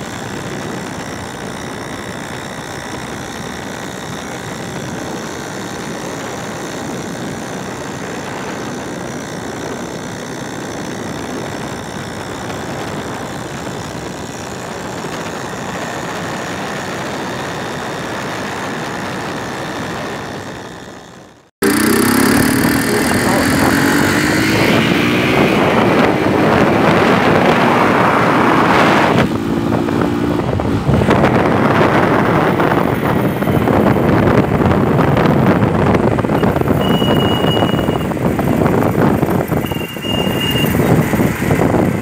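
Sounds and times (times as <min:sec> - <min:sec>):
motorcycle engine: 0:00.0 - 0:42.0
motorcycle engine revving: 0:00.0 - 0:42.0
wind and road noise: 0:00.0 - 0:42.0.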